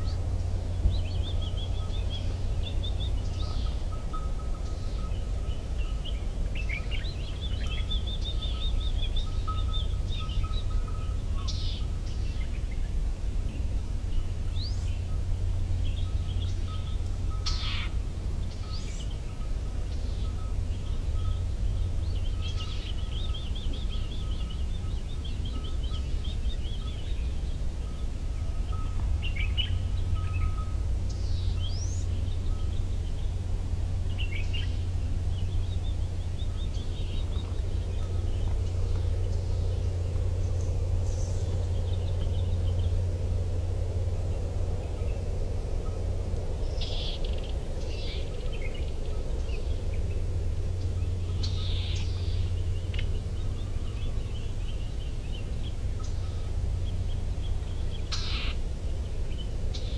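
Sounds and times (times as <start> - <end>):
birds trilling: 0.0 - 33.4, 34.0 - 59.9
low rumble: 0.0 - 59.9
bird sweeping calls: 17.4 - 18.0, 46.6 - 48.2, 58.0 - 58.6.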